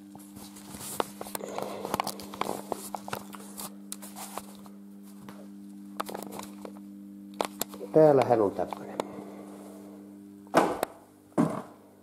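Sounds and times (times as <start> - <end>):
low electrical hum: 0.0 - 12.0
camera handling rustles and clicks: 0.5 - 5.2, 6.0 - 6.8, 7.4 - 7.8.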